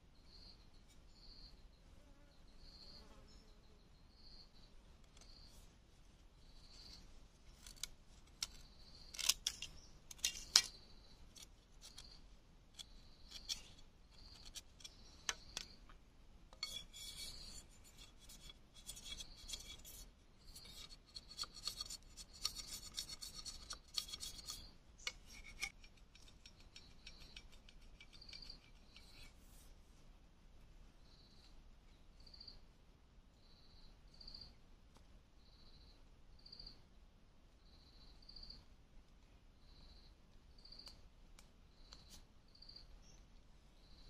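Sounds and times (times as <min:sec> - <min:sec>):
insects buzzing: 0:00.2 - 0:05.6
knife scraping bamboo stick: 0:06.7 - 0:15.8, 0:16.5 - 0:29.7.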